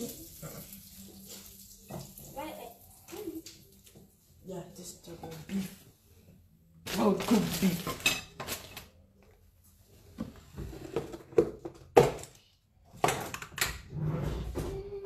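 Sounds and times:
food packaging being handled: 6.9s - 9.0s.

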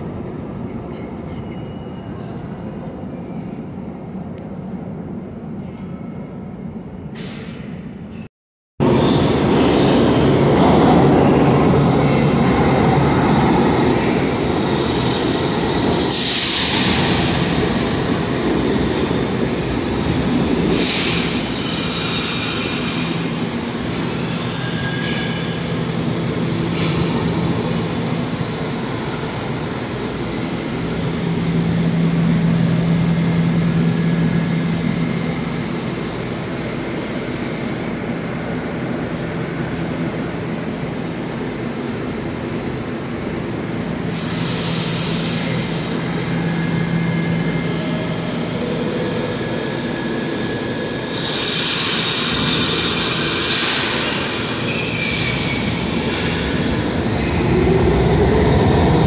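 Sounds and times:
train wheels squealing: 0.9s - 3.6s, 20.3s - 38.1s, 39.2s - 59.0s
train rumble: 42.2s - 59.0s.

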